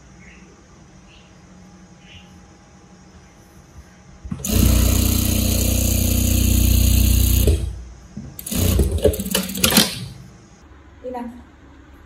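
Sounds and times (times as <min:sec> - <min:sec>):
sewing machine clicking: 0:04.3 - 0:07.8, 0:08.4 - 0:10.2
sewing machine stitching: 0:04.3 - 0:07.8, 0:08.4 - 0:10.2.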